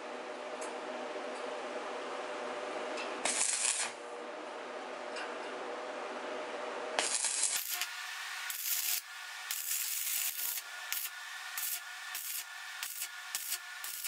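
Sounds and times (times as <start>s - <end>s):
welding arc crackling: 3.2s - 4.0s, 7.0s - 14.0s.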